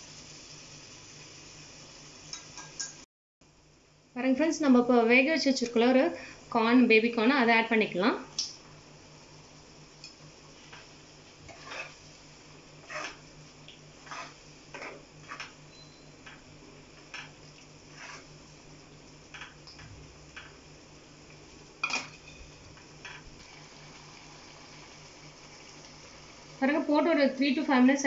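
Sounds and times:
metal ladle scraping a pan: 11.4s - 12.1s, 12.8s - 13.3s, 14.0s - 15.6s, 17.9s - 18.4s.

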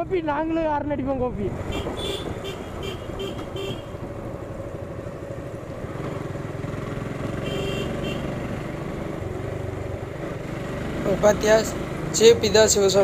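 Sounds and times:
motorcycle engine running: 1.6s - 13.0s.

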